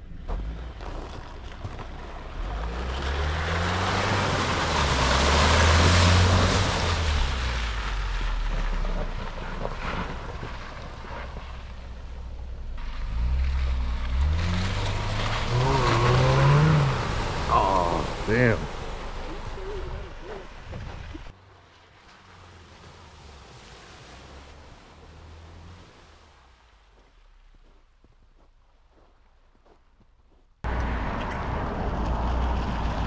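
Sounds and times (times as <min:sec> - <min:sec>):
tyres splashing through water: 0:00.3 - 0:27.6
car engine revving: 0:02.0 - 0:21.3.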